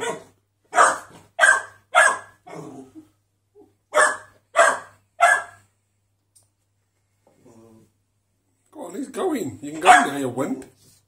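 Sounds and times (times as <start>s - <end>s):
puppy barking: 0.0s - 2.7s, 3.9s - 5.7s, 9.8s - 10.2s.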